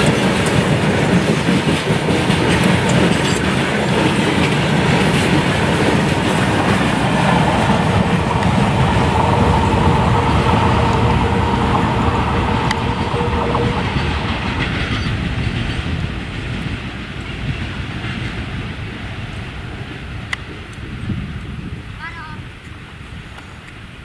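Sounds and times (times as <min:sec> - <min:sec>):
train wheels clattering over rails: 0:00.0 - 0:21.6
steady high tone: 0:06.6 - 0:15.3.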